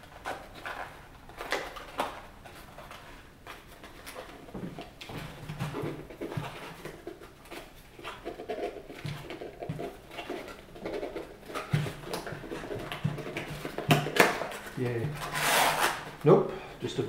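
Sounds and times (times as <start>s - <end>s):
cardboard box rustling and scraping: 14.4s - 16.1s.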